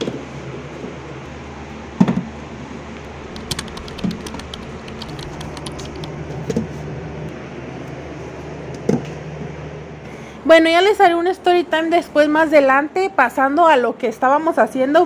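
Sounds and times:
light clicks and taps: 3.0 - 6.1.

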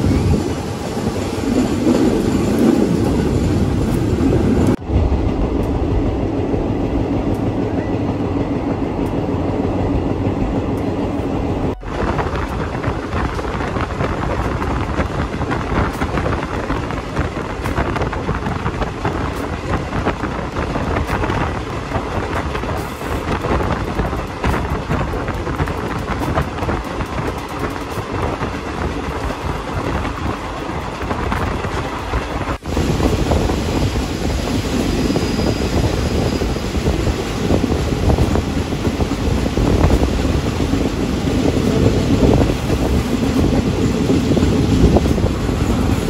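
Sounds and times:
rushing air: 0.0 - 46.0
train wheels rumbling on rails: 0.0 - 46.0.

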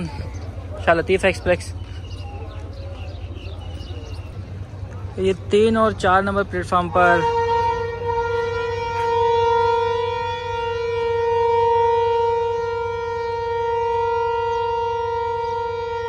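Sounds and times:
locomotive air horn blast: 6.9 - 16.0.

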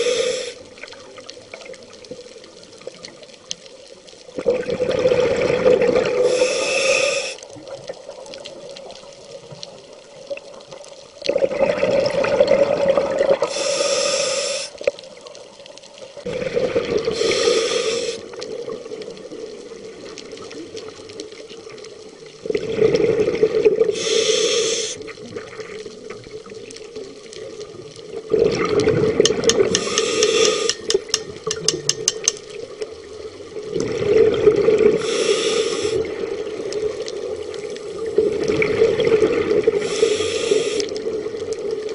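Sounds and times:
regulator valve hissing: 0.0 - 0.6, 6.3 - 7.4, 13.5 - 14.8, 17.2 - 18.2, 23.9 - 25.0, 29.5 - 32.4, 35.0 - 36.0, 39.8 - 40.9
exhaled bubbles rushing: 4.4 - 6.4, 11.2 - 13.5, 16.2 - 17.6, 22.4 - 24.0, 28.1 - 29.8, 33.5 - 35.1, 35.9 - 39.9.

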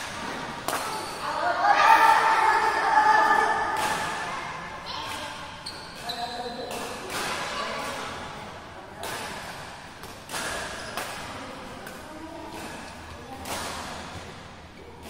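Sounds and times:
rackets striking shuttlecock: 0.1 - 1.2, 3.3 - 4.3, 9.0 - 14.3.

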